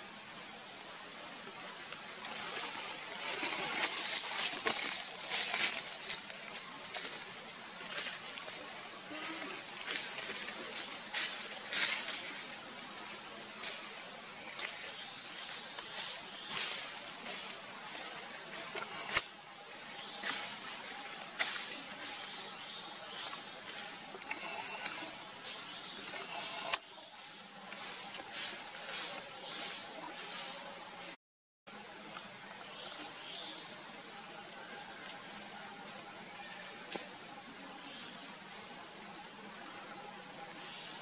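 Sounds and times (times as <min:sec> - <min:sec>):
insects shrilling: 0:01.2 - 0:31.2.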